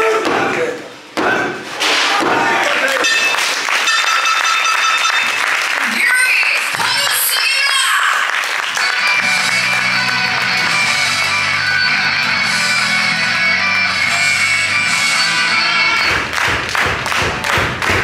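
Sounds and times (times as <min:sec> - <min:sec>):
guitar and bass music: 0:08.8 - 0:16.1.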